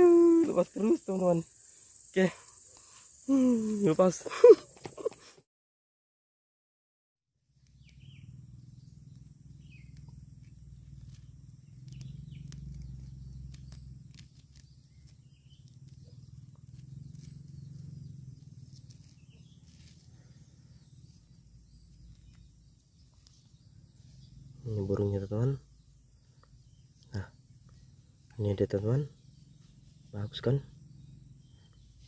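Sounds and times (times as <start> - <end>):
bird chirps: 7.6 - 32.0.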